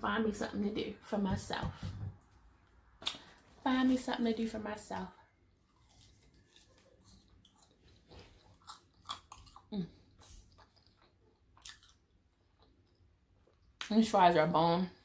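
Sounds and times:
person chewing: 0:05.6 - 0:13.8.

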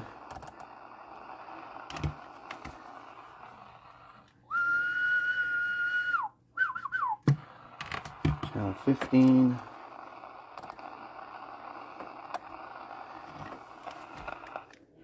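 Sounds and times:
man whistling into a microphone: 0:04.5 - 0:07.2.

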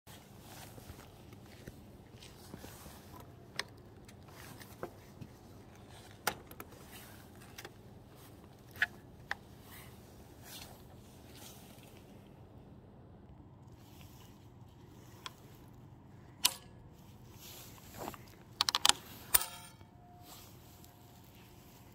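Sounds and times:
faint background noise: 0:00.1 - 0:21.9
scooter stem clicks and knocks: 0:18.6 - 0:19.9.

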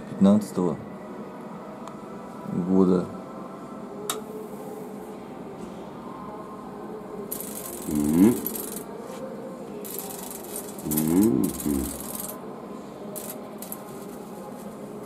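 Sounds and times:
high-voltage discharge hissing: 0:07.3 - 0:08.8, 0:09.9 - 0:12.4.

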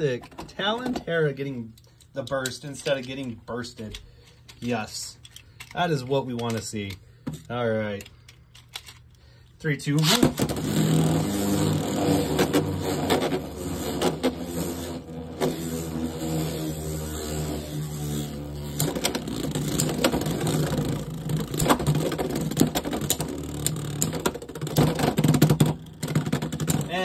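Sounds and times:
spinning tops whirring: 0:10.0 - 0:27.0.

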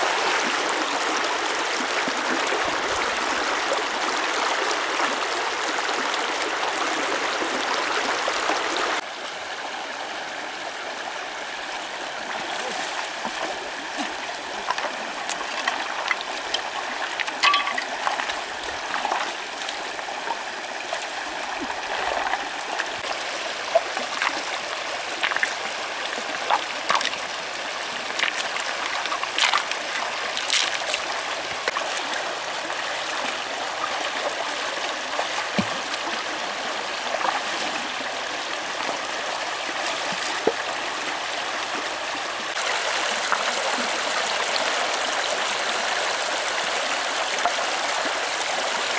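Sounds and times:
shallow river running over stones: 0:00.0 - 0:48.9
stones knocking and splashing in water: 0:12.8 - 0:19.8, 0:21.6 - 0:23.1, 0:23.7 - 0:24.6, 0:25.2 - 0:27.3, 0:28.0 - 0:32.2, 0:35.2 - 0:35.9.

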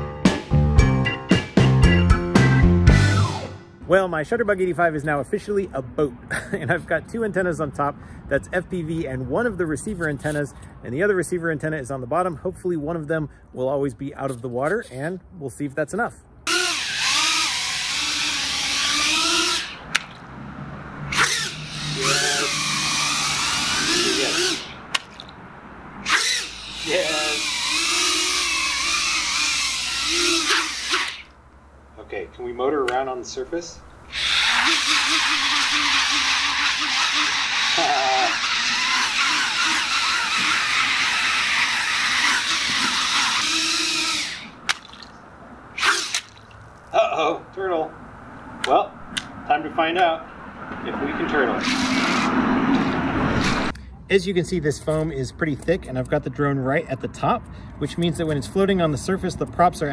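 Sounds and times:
drone motors whining: 0:02.8 - 0:03.7, 0:16.5 - 0:20.3, 0:21.0 - 0:25.3, 0:26.0 - 0:31.4, 0:34.0 - 0:44.7, 0:45.7 - 0:46.3, 0:50.7 - 0:53.7.

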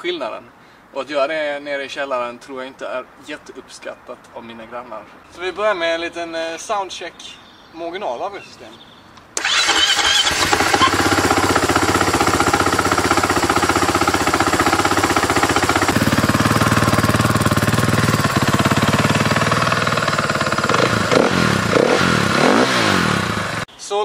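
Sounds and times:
motorcycle engine idling: 0:09.4 - 0:23.6.

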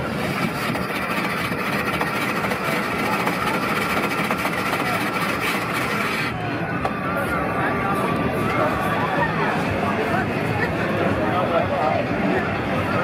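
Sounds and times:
electric ice shaver grinding ice: 0:00.0 - 0:06.4.

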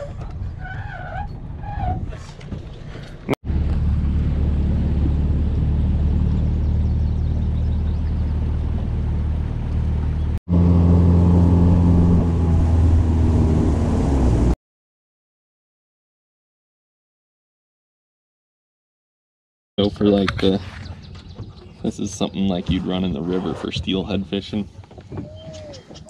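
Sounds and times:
boat motor droning: 0:03.2 - 0:14.6.

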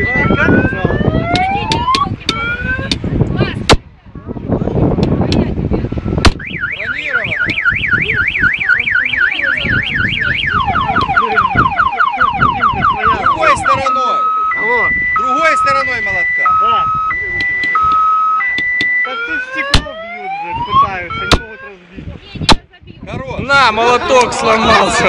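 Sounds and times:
car alarm siren: 0:00.0 - 0:03.0, 0:06.3 - 0:21.8.

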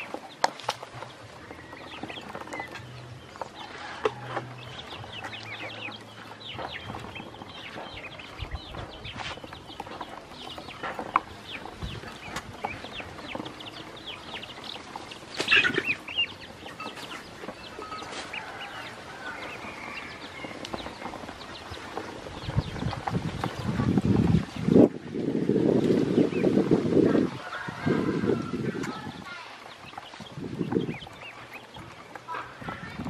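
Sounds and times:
ducklings peeping: 0:00.0 - 0:33.0.

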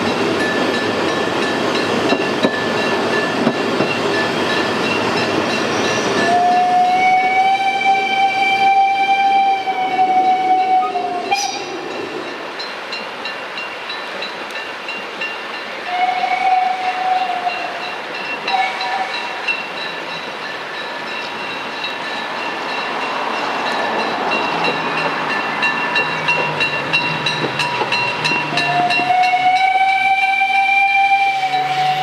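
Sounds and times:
train running noise: 0:00.0 - 0:32.0
steam locomotive whistle: 0:05.8 - 0:11.9, 0:15.8 - 0:19.6, 0:28.2 - 0:32.0.

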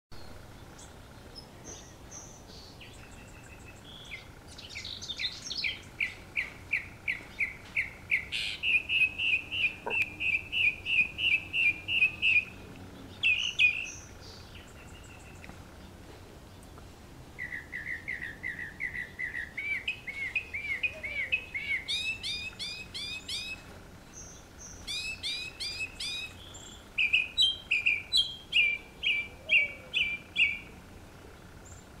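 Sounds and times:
mockingbird singing: 0:00.2 - 0:16.8, 0:17.4 - 0:32.0.

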